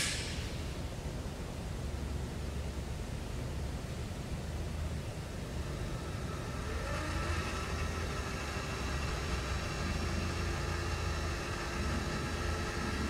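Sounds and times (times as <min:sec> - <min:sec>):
low hum: 0:00.0 - 0:13.0
electric motor whine: 0:05.6 - 0:13.0.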